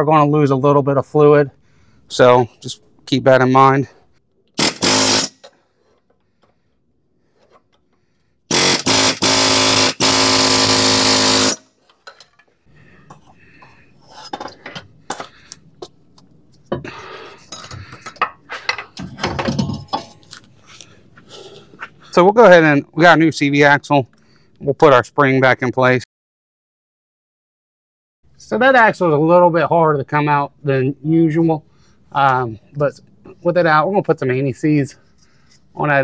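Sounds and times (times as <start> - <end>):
buzzing power tool: 4.6 - 5.4, 8.5 - 11.7
metal clinks and knocks: 11.8 - 13.3, 17.5 - 20.4.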